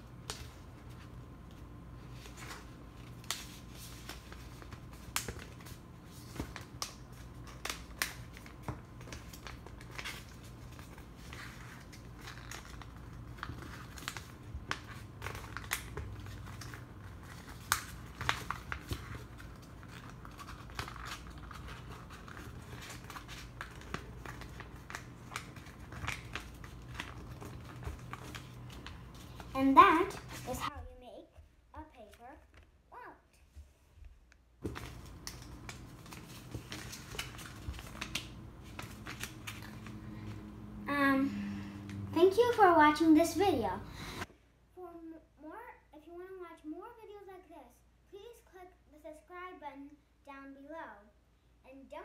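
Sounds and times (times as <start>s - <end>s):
paper rustling and crinkling: 0.2s - 30.7s, 34.6s - 40.4s.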